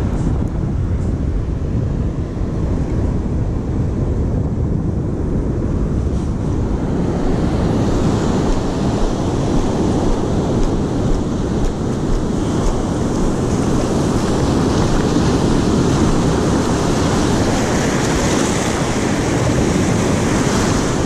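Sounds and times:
wind buffeting microphone: 0:00.0 - 0:21.0
ocean surf breaking: 0:06.2 - 0:21.0.

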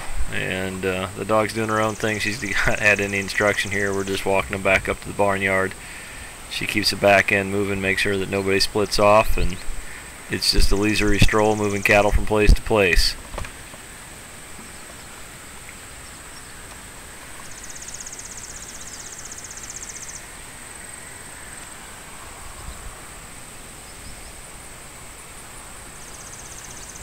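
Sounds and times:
insects high-pitched drone: 0:00.3 - 0:13.0, 0:16.0 - 0:27.0
insect rapid pulsed trill: 0:26.0 - 0:27.0.

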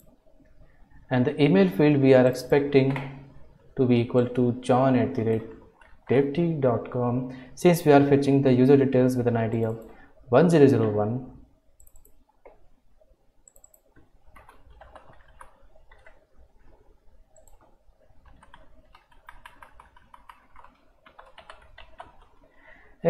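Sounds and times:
keyboard typing: 0:05.1 - 0:06.4, 0:11.8 - 0:12.7, 0:13.4 - 0:22.5.

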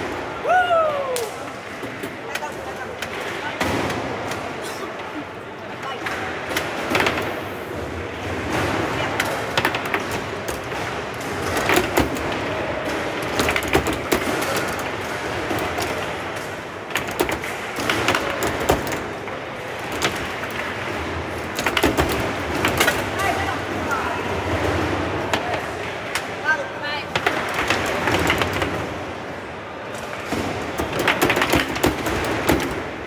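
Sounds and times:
background noise: 0:00.0 - 0:33.0
ball cracking against foosball players: 0:06.0 - 0:26.4, 0:27.1 - 0:29.3, 0:29.9 - 0:33.0.

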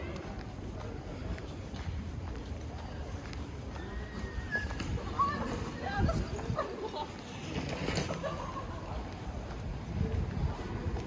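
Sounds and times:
wind rumble on microphone: 0:04.4 - 0:07.4, 0:08.9 - 0:11.0.

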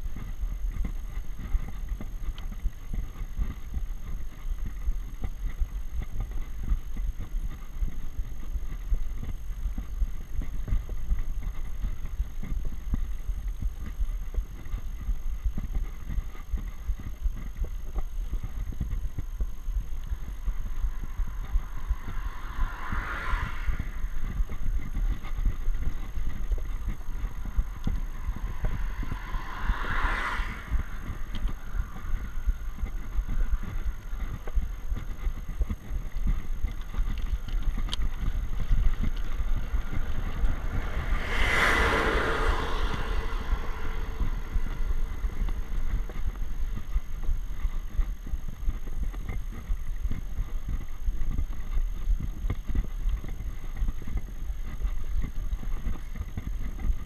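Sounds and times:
wind rumble on microphone: 0:00.0 - 0:57.0
vehicle passing: 0:16.6 - 0:48.2.

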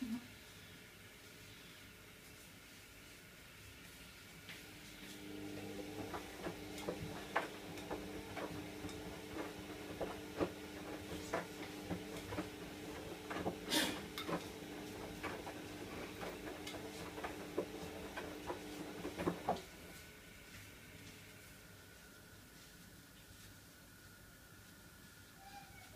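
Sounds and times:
scrubbing plastic fan blades: 0:05.0 - 0:20.0
kitchen tap running: 0:05.2 - 0:19.7.

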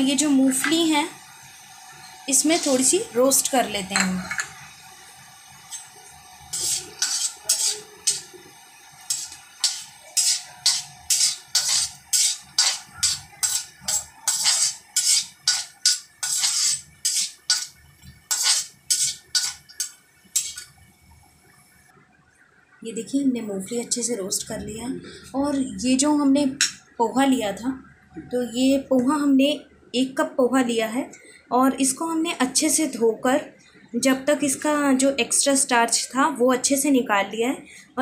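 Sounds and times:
metal spoon scraping an iron pan: 0:02.3 - 0:02.9, 0:06.5 - 0:08.3, 0:09.1 - 0:20.7.

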